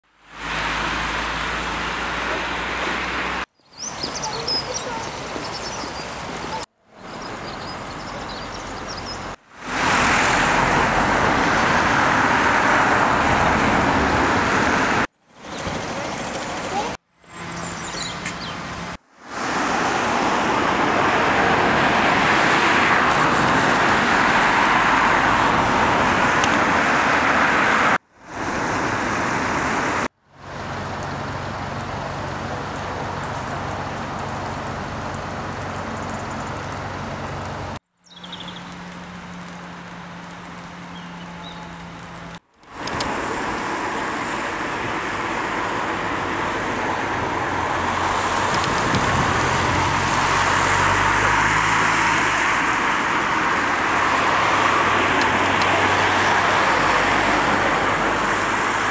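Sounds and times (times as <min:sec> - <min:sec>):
road traffic: 0:00.0 - 0:58.9
floodwater rushing: 0:00.4 - 0:17.0, 0:43.0 - 0:58.9.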